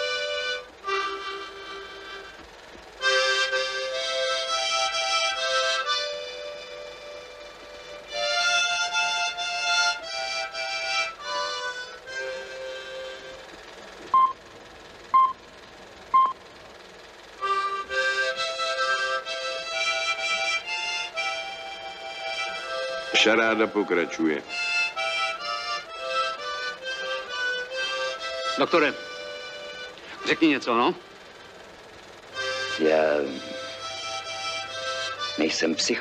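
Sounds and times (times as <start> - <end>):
harmonica playing slow tune: 0.0 - 13.6, 17.3 - 36.0
loud high beeps: 14.2 - 14.4, 15.2 - 15.4, 16.2 - 16.4.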